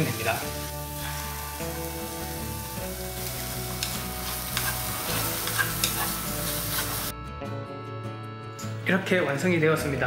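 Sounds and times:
egg and carrot sizzling in pan: 0:00.0 - 0:07.1
chopsticks tapping a pan: 0:03.7 - 0:07.0.

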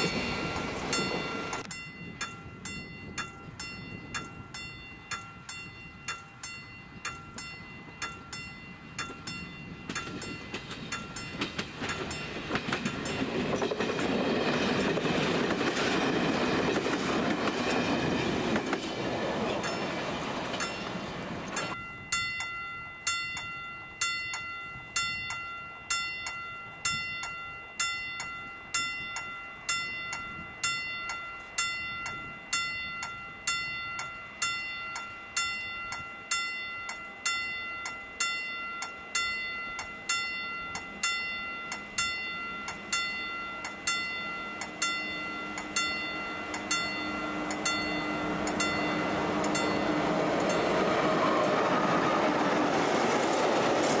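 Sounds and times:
train rumble: 0:00.0 - 0:22.4, 0:38.9 - 0:54.0
level crossing warning bell: 0:00.0 - 0:54.0
low steady tone: 0:21.6 - 0:50.8.

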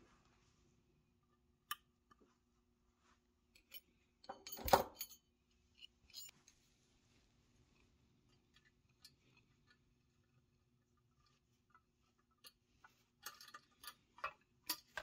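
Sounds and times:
metal toy parts clicking and scraping: 0:04.5 - 0:06.3, 0:13.2 - 0:15.0.

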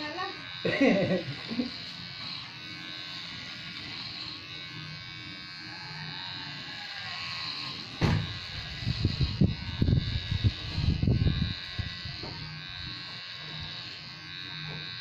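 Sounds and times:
electric hair clippers buzzing: 0:00.0 - 0:15.0.

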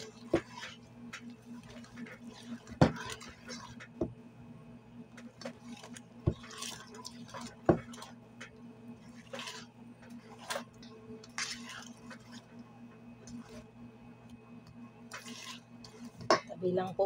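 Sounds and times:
whisk scraping metal bowl: 0:00.0 - 0:04.0, 0:05.4 - 0:08.2, 0:08.9 - 0:12.6, 0:13.2 - 0:13.7, 0:15.1 - 0:16.4.

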